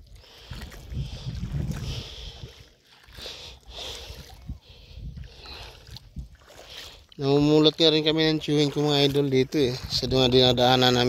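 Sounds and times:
wind rumble on microphone: 0.0 - 2.7, 3.6 - 6.8, 9.0 - 11.0
footsteps sloshing through water: 0.0 - 11.0.

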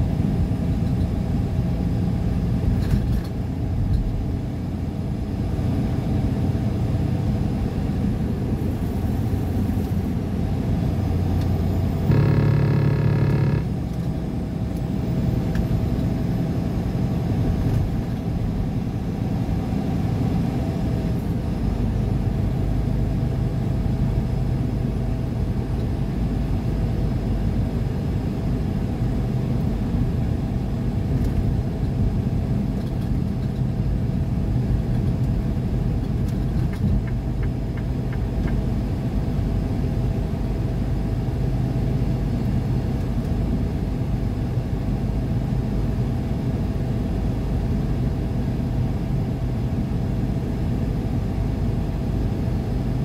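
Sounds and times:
car road and engine noise: 0.0 - 53.0
steady pitched tone: 12.1 - 13.8.

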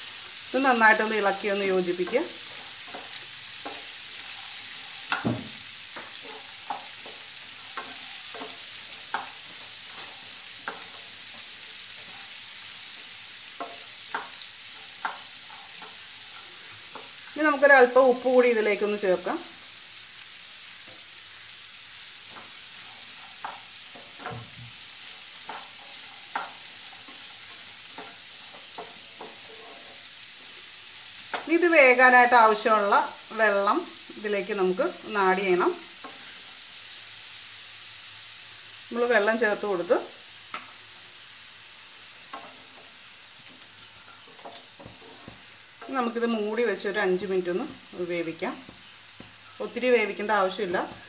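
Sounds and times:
carrots sizzling in a frying pan: 0.0 - 51.0
spatula scraping a pan: 2.0 - 17.4, 22.2 - 31.5, 41.8 - 46.1.

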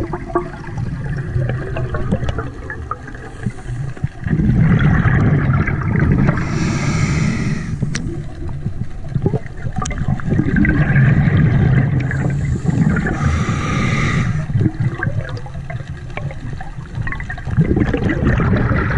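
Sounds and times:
low underwater rumble: 0.0 - 18.9
underwater bubbles: 0.0 - 18.9
diver breathing through regulator: 3.2 - 4.2, 6.3 - 8.1, 12.0 - 14.6.

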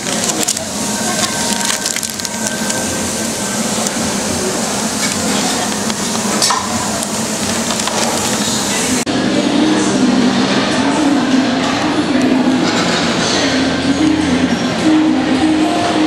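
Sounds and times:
paper wrapper crinkling: 0.0 - 4.1, 6.9 - 8.6.

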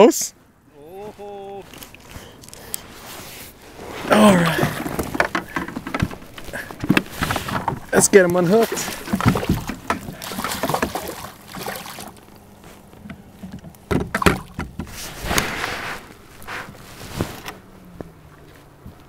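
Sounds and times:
fish handling knocks and rattles: 4.5 - 15.5.

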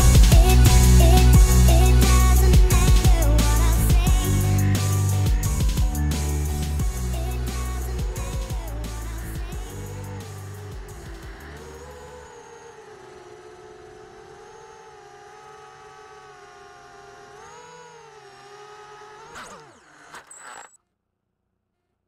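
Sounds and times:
drone motors whining: 0.0 - 20.8
clicks: 19.2 - 20.8.

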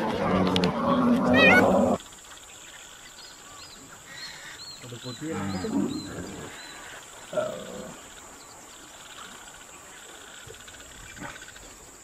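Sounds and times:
faint outdoor ambience: 0.0 - 12.0
high insect whine: 0.0 - 12.0.

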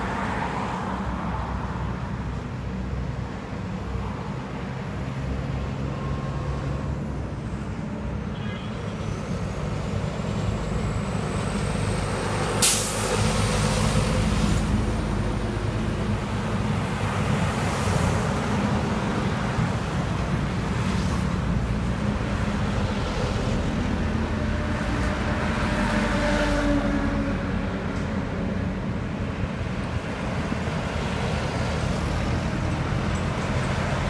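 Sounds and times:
highway traffic rumble: 0.0 - 34.0
truck air brake hiss: 12.5 - 13.9.

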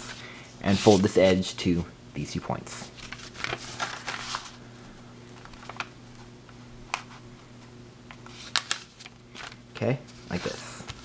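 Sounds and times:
paper rustling and crinkling: 0.0 - 1.4, 2.9 - 4.6, 5.4 - 6.3, 8.2 - 11.0.

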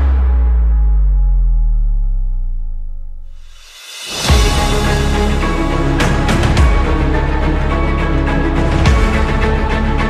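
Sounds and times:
deep low sustained tone: 0.0 - 6.0
dramatic soundtrack hits: 0.0 - 10.0.

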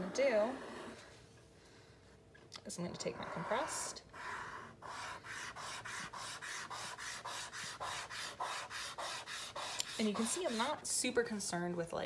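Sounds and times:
charcoal scraping on paper: 3.3 - 10.8.

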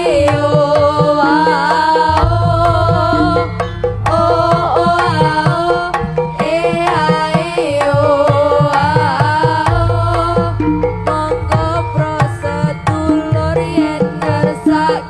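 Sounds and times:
hand drums playing busy rhythm: 0.0 - 15.0
ornamented melody line: 0.0 - 15.0
deep gong note: 2.1 - 7.0, 9.7 - 13.5.

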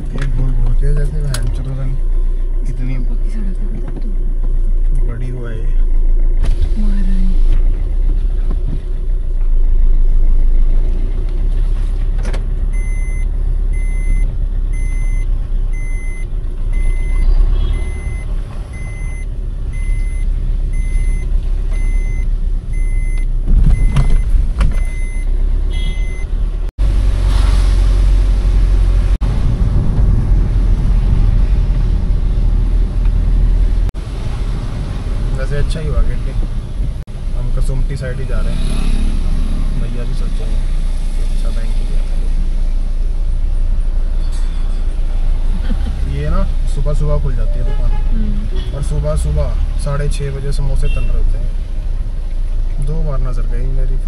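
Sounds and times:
vehicle engine rumbling: 0.0 - 54.0
electronic beep: 16.8 - 21.2, 24.8 - 26.3.

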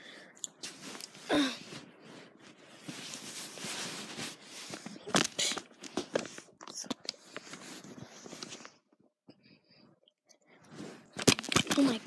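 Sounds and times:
phone handling rustling: 11.1 - 12.0.

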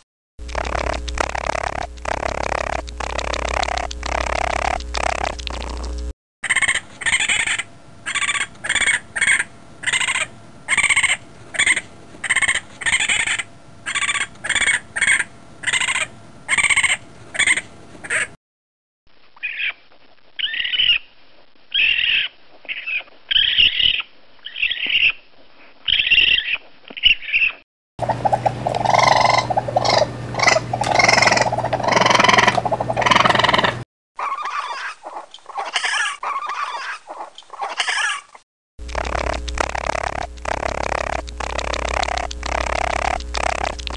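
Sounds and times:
steady low hum: 0.4 - 18.4, 28.0 - 33.8, 38.8 - 43.9
raccoon screams: 6.5 - 18.3, 19.4 - 19.8, 20.4 - 21.0, 21.7 - 25.2, 28.7 - 38.4.

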